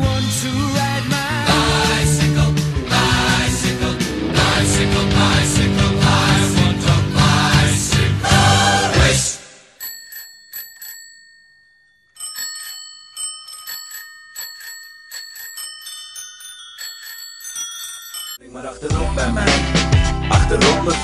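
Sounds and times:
bicycle bells ringing: 9.7 - 18.8.

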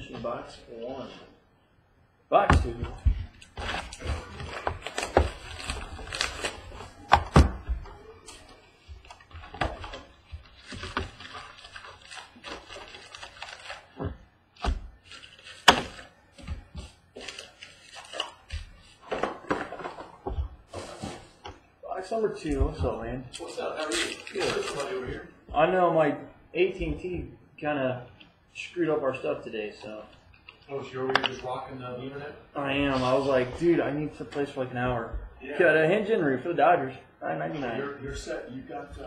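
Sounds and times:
plastic and foil crinkling: 2.6 - 21.6, 22.4 - 25.3.

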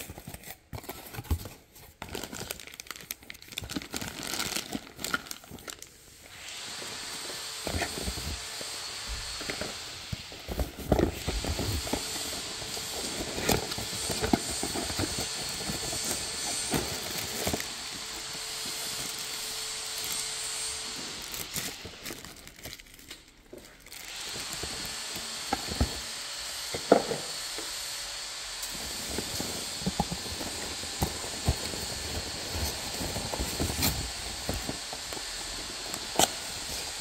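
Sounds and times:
plastic bag crinkling: 0.0 - 6.0, 21.2 - 24.7
cardboard and paper rustling: 0.0 - 27.4, 28.6 - 37.0.

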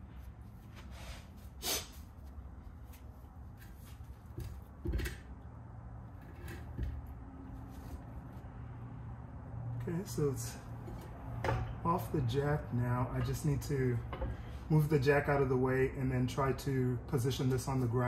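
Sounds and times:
knocks and clicks of hub turned by hand: 10.8 - 12.4, 13.0 - 14.6.

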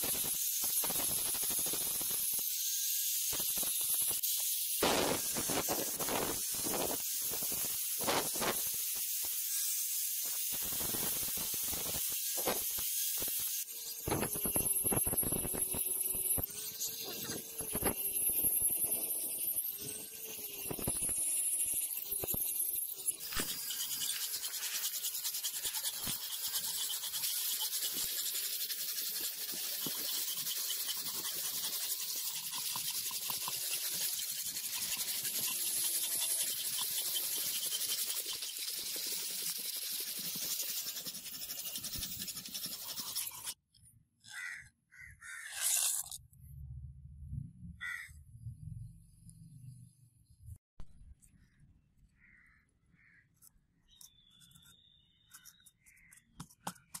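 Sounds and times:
angle grinder grinding steel: 0.0 - 43.6, 45.2 - 46.2
hand file rasping on steel: 23.2 - 43.6.

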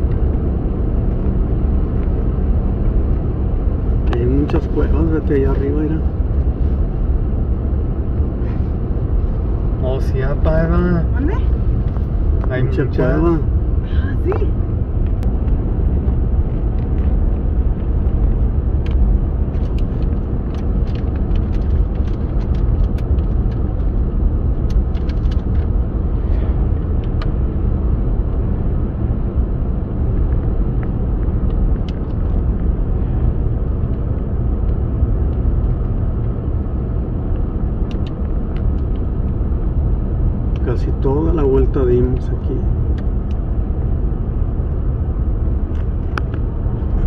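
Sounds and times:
car engine and road rumble: 0.0 - 47.0
small clicks and rattles: 24.6 - 25.7.

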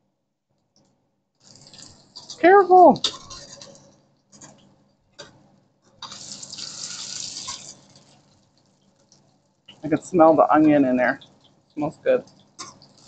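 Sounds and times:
pancakes sizzling in hot oil: 1.4 - 5.3, 6.0 - 10.0, 11.1 - 13.0.

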